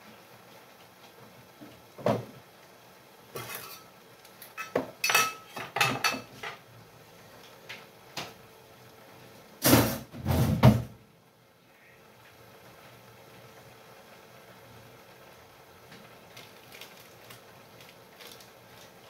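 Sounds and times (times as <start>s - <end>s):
plates and cutlery clattering: 3.4s - 3.9s, 4.5s - 6.6s.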